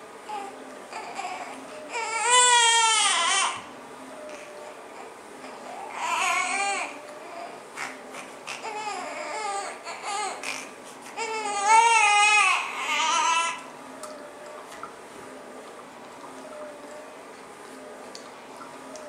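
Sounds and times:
infant crying and whimpering: 0:00.3 - 0:03.7, 0:04.6 - 0:13.6.

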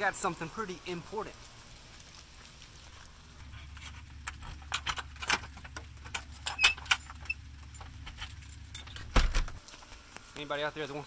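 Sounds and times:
keys jangling and clicking in lock: 0:06.1 - 0:09.1.

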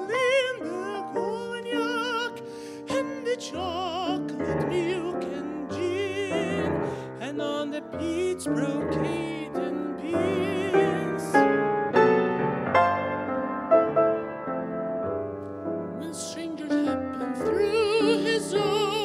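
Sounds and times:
person singing with vibrato: 0:00.0 - 0:11.6, 0:15.9 - 0:19.0
grand piano: 0:00.0 - 0:19.0.

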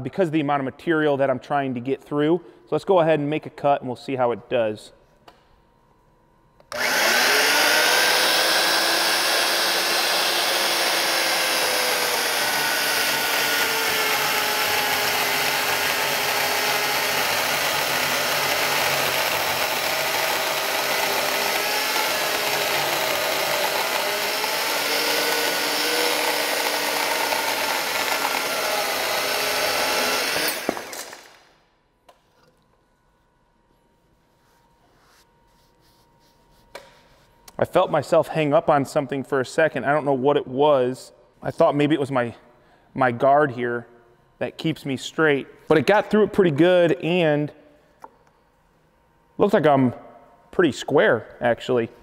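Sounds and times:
electric saw cutting wood: 0:06.7 - 0:31.4.

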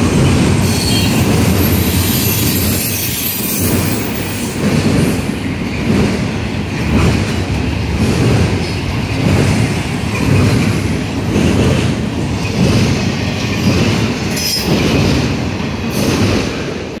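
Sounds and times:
freight train wheels rumbling on rails: 0:00.0 - 0:17.0
high wheel squeal: 0:00.6 - 0:04.6.

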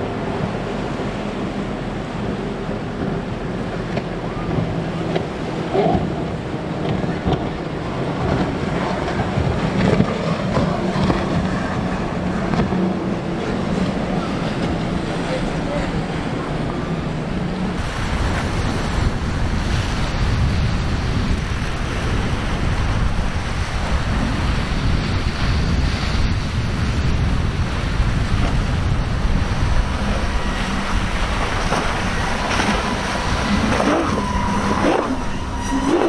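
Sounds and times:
boat outboard engines: 0:00.0 - 0:36.0
wind buffeting microphone: 0:00.0 - 0:36.0
crashing surf: 0:17.7 - 0:36.0.

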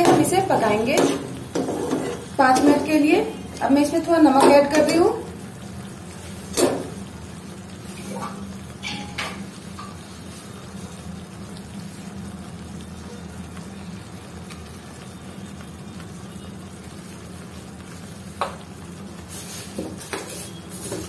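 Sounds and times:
sauce sizzling in a frying pan: 0:00.0 - 0:21.0.

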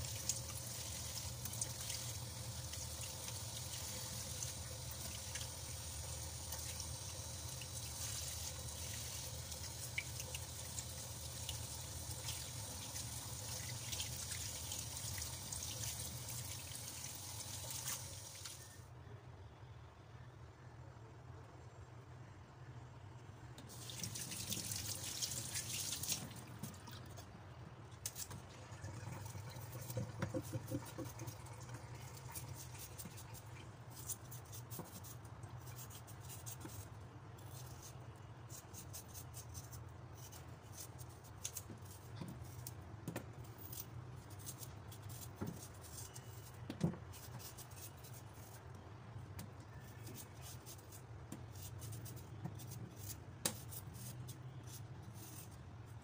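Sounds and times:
tap water running: 0:00.0 - 0:18.7, 0:23.7 - 0:27.2, 0:28.1 - 0:33.5
knife scraping ginger: 0:28.0 - 0:28.4, 0:29.6 - 0:31.4, 0:32.1 - 0:42.8, 0:43.4 - 0:48.8, 0:49.7 - 0:56.0.

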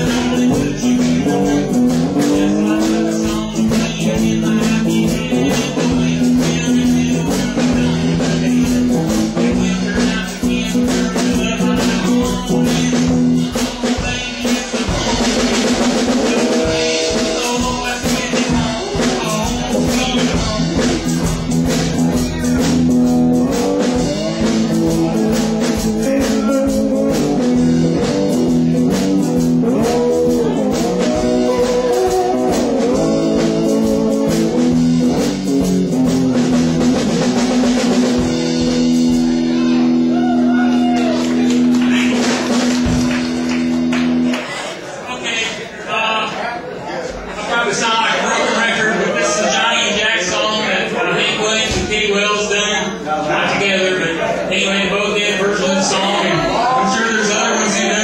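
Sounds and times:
man singing: 0:00.0 - 0:41.2, 0:48.6 - 0:58.0
drum kit: 0:00.0 - 0:44.8.

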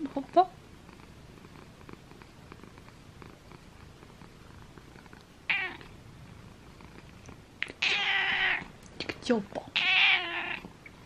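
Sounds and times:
cat purring: 0:00.0 - 0:11.0
cat meowing: 0:05.5 - 0:05.9, 0:07.6 - 0:08.7, 0:09.8 - 0:10.7.

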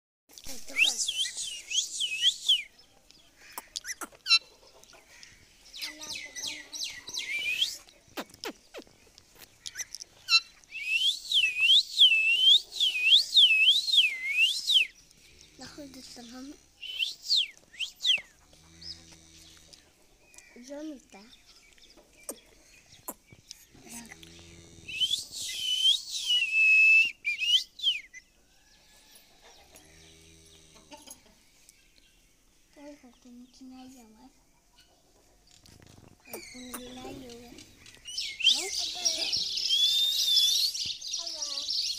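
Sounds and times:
parakeet chirps and clicks: 0:03.5 - 0:04.4, 0:36.2 - 0:38.2
parakeet whistling: 0:38.1 - 0:40.8.

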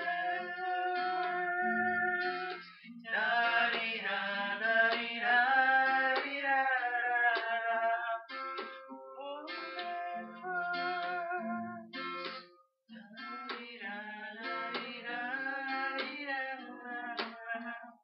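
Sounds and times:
men singing: 0:00.0 - 0:08.3, 0:12.9 - 0:18.0
acoustic guitar: 0:00.0 - 0:18.0.

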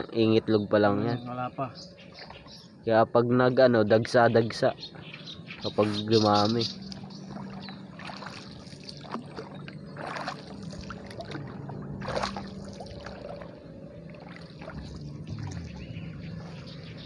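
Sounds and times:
low hum: 0:00.0 - 0:17.0
paddle splashing in water: 0:07.0 - 0:15.8.

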